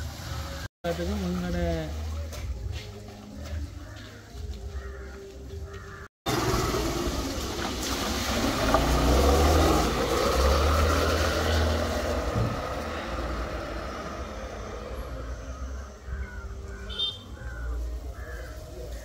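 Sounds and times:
tyres spraying water: 0:00.0 - 0:03.0, 0:06.3 - 0:15.3
scooter engine running: 0:06.3 - 0:14.8.

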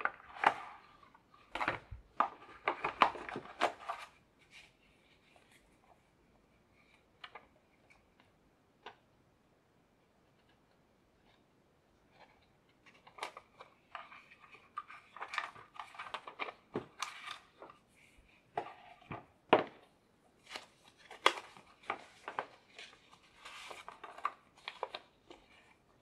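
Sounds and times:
hands handling a box: 0:12.2 - 0:25.9.

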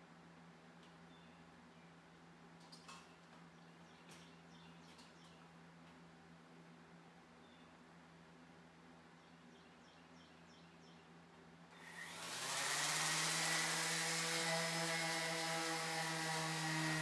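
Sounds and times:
orbital sander running: 0:11.9 - 0:17.0.

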